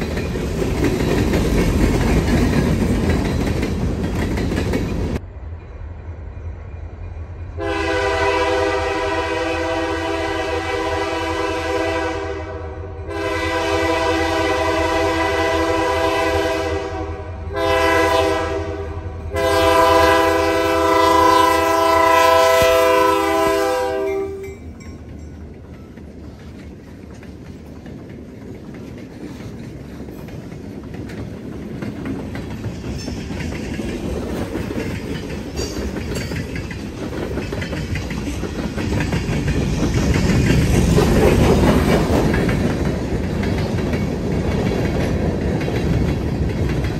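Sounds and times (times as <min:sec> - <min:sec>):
train wheels rumbling on rails: 0:00.0 - 0:46.9
locomotive horn blasts: 0:07.6 - 0:24.6.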